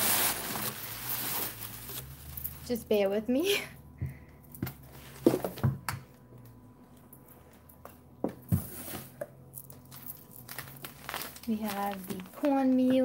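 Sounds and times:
packaging rustling: 0.0s - 2.6s, 8.6s - 13.0s.

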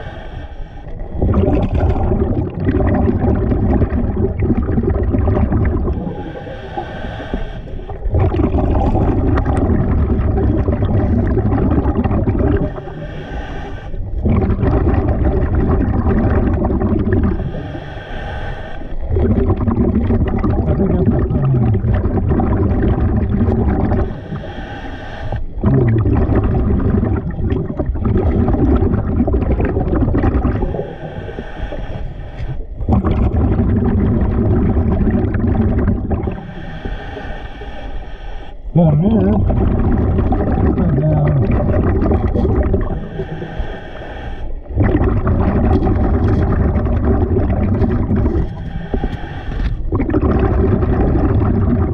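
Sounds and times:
hissing inhalations: 0.0s - 1.0s, 6.1s - 8.0s, 12.6s - 14.1s, 17.4s - 19.1s, 24.0s - 25.6s, 30.6s - 32.8s, 36.3s - 38.8s, 42.8s - 44.7s, 48.2s - 49.9s
bubbling exhaled air: 0.0s - 51.9s.

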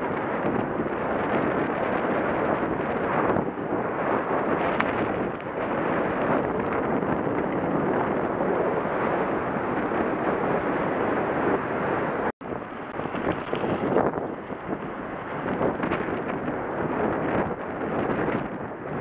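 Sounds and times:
bike tyres rolling on gravel: 0.0s - 19.0s
wind rushing over microphone: 0.0s - 19.0s.

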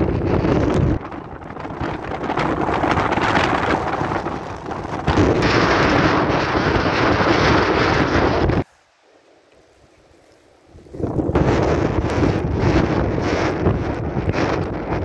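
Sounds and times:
storm wind buffeting microphone: 0.0s - 8.7s, 10.6s - 15.0s.

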